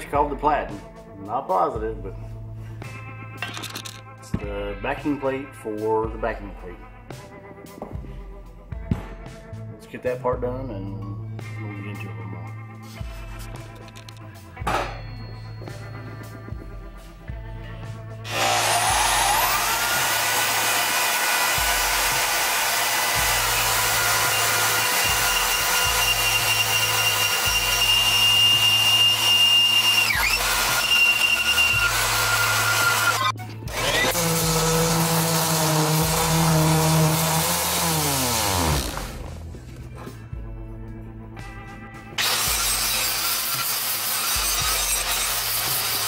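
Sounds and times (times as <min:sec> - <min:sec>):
background music: 0:00.0 - 0:46.0
band saw cutting steel: 0:18.2 - 0:39.5, 0:42.2 - 0:46.0
orbital sander on steel: 0:18.3 - 0:39.5, 0:42.2 - 0:46.0.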